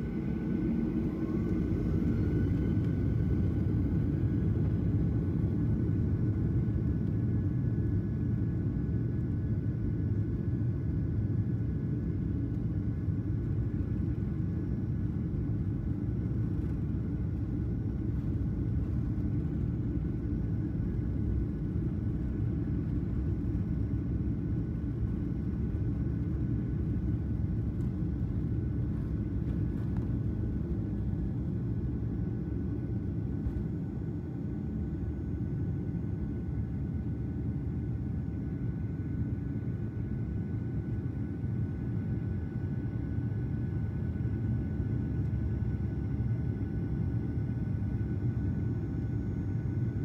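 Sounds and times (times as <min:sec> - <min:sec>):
engine and wheel rumble: 0:00.0 - 0:07.2, 0:15.1 - 0:34.8
faint steady whine: 0:00.0 - 0:50.0.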